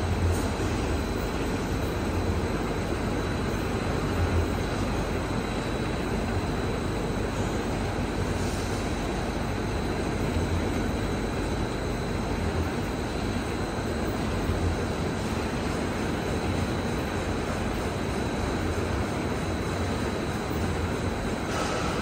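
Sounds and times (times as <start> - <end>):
laminating machine running: 0.0 - 22.0.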